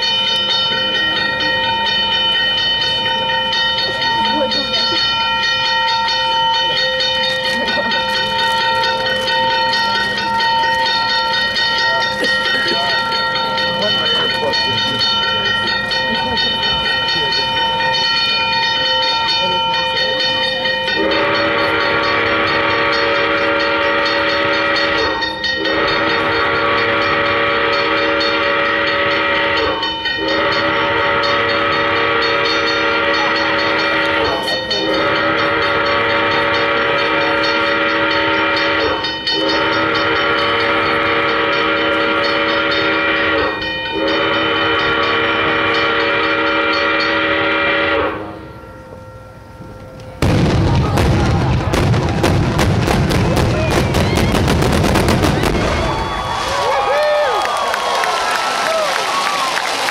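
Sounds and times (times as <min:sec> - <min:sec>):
train horn blasts: 0:20.9 - 0:48.6.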